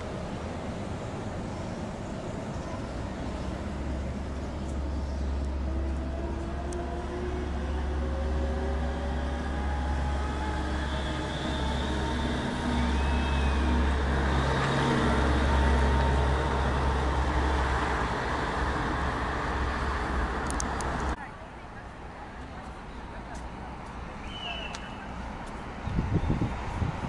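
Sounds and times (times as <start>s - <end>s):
road traffic rumble: 0.0s - 27.0s
train traction motor whine: 3.7s - 21.1s.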